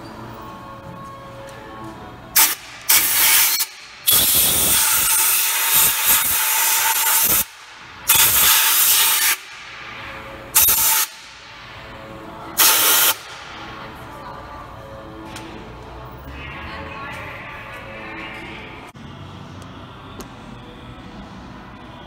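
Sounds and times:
compressed air hissing from blow gun: 2.4s - 7.5s, 8.1s - 9.5s, 10.6s - 11.2s, 12.6s - 13.3s.

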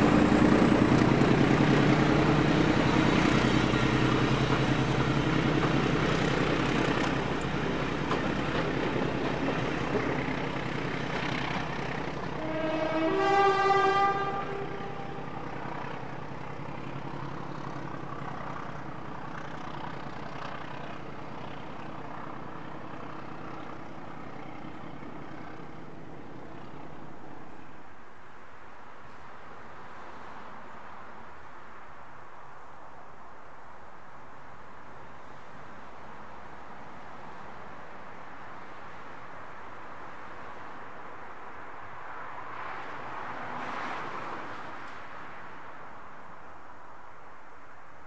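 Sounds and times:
diesel locomotive engine running: 0.0s - 27.8s
two-tone locomotive horn: 12.2s - 15.9s.

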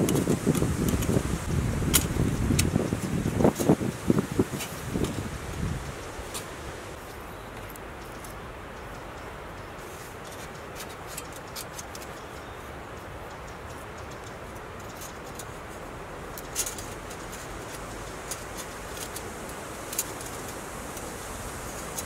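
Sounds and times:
steady background hiss: 0.0s - 22.0s
metal plates clicking and scraping: 13.7s - 20.6s.

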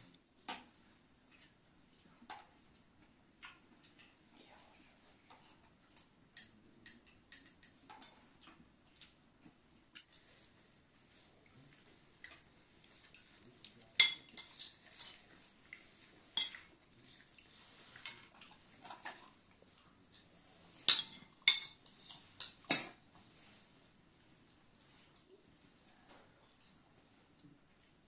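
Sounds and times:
metal spoons clinking on plates: 6.3s - 8.2s, 13.9s - 15.3s, 16.3s - 16.7s, 18.0s - 19.2s, 20.8s - 23.0s.

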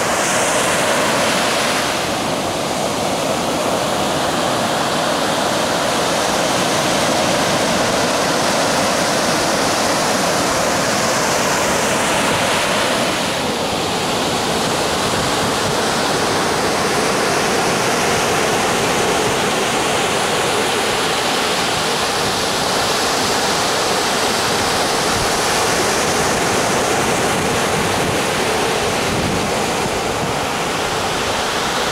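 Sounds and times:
sea surf breaking on beach: 0.0s - 31.9s.

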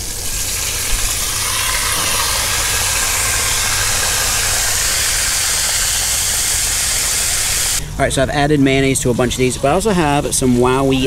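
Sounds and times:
fish frying in hot oil: 0.0s - 7.8s.

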